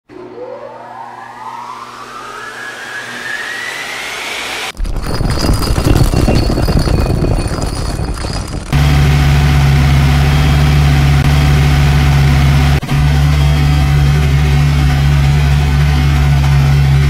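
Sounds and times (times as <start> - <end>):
engine idling: 8.6 - 17.0.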